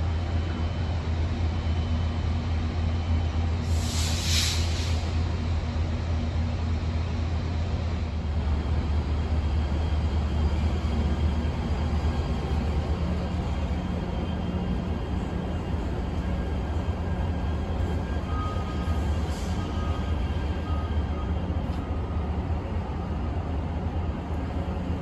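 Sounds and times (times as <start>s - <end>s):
train running hum: 0.0s - 25.0s
short hiss: 3.7s - 5.1s.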